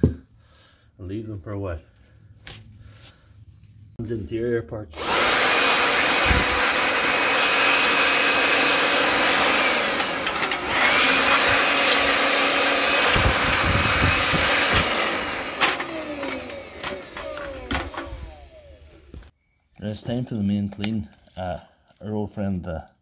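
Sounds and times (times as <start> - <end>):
leaf blower whining: 4.9 - 19.3.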